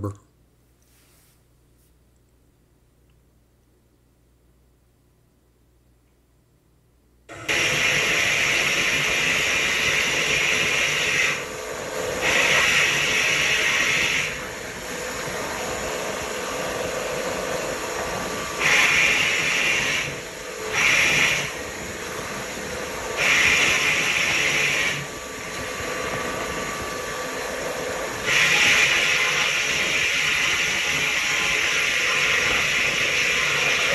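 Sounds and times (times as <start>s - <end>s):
vapor blasting hiss: 7.5s - 33.9s.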